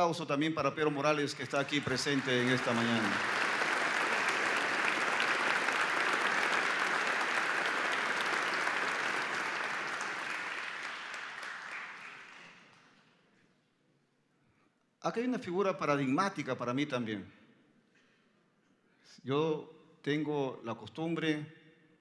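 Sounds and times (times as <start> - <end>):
audience applauding: 0.8 - 13.0.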